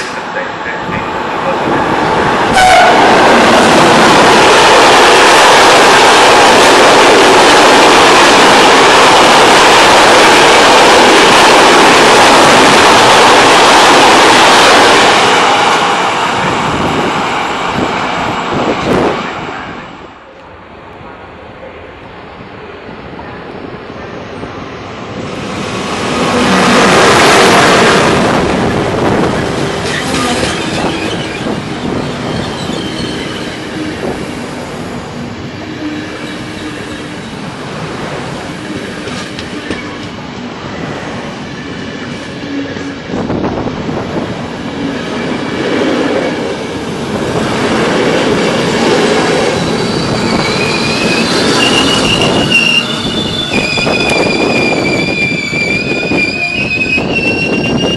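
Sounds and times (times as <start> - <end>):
locomotive rushing past: 24.8 - 57.9
steel wheels squealing: 29.8 - 34.0, 49.6 - 57.9.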